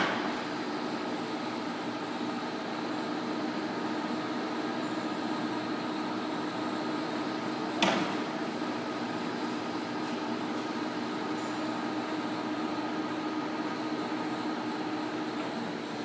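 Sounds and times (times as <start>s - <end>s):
lathe humming and whining: 0.0s - 16.0s
sharp clunk: 7.8s - 8.2s.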